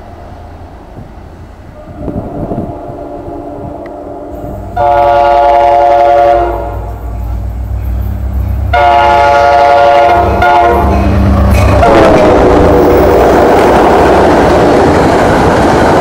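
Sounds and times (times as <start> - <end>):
low rumble of train: 0.0 - 16.0
train air horn chord: 1.8 - 7.0, 8.7 - 11.0, 11.7 - 12.9.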